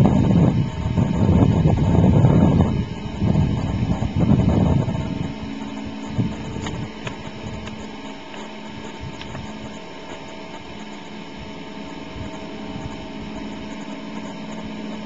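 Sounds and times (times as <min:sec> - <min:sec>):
distant plane engine drone: 0:00.0 - 0:15.0
wind buffeting microphone: 0:00.0 - 0:15.0.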